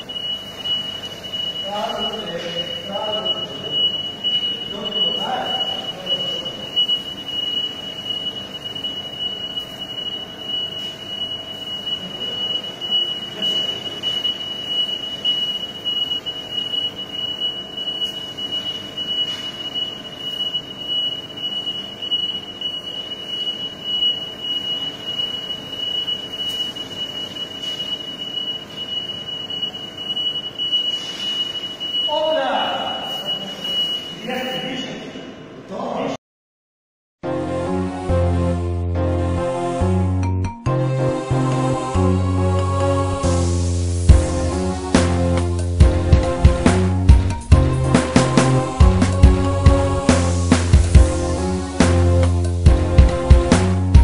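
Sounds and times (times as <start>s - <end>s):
high-pitched electronic alarm tone: 0.0s - 35.2s.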